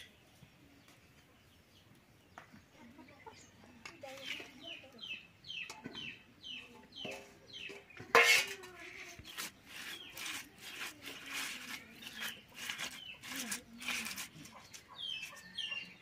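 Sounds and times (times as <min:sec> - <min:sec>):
chickens chirping: 0:00.0 - 0:16.0
steel bowl clatter: 0:07.7 - 0:14.8
fish clicking and rustling: 0:09.0 - 0:15.5.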